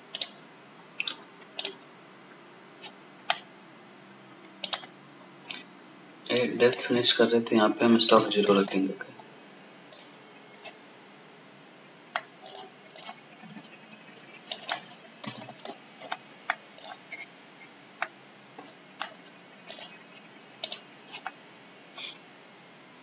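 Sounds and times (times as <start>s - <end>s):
computer mouse clicking: 0.1s - 0.4s, 1.0s - 1.8s, 4.4s - 4.9s, 14.5s - 17.2s, 20.6s - 21.4s.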